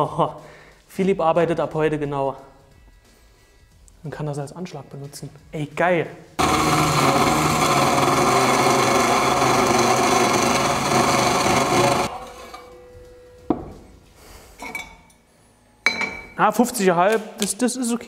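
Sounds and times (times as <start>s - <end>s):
circular saw cutting steel: 6.4s - 12.2s.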